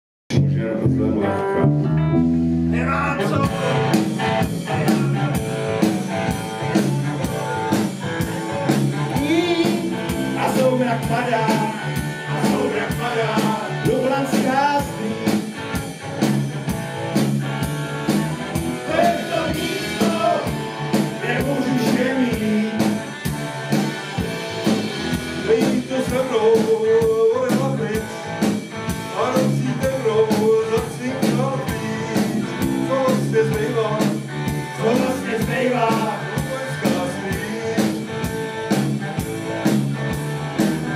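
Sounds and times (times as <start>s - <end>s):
steady beat: 3.3s - 32.9s
men singing together: 9.1s - 15.4s, 18.8s - 23.1s, 25.4s - 28.3s, 29.1s - 38.2s.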